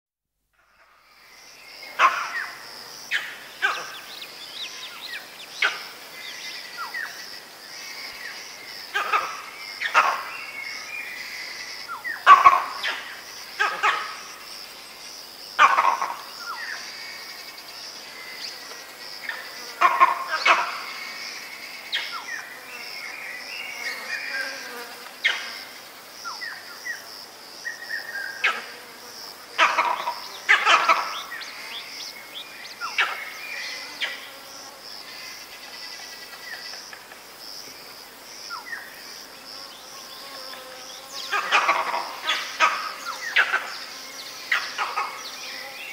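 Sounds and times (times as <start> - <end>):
high-pitched insect drone: 1.0 - 28.6
monkey alarm calls: 13.6 - 14.2, 29.6 - 31.4.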